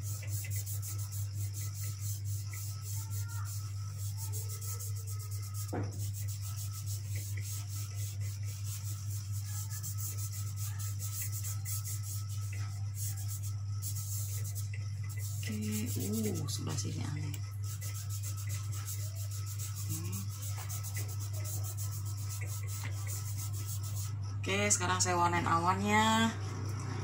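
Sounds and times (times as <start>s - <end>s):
pastel rubbing on paper: 0.0s - 24.2s
steady low hum: 0.0s - 27.0s.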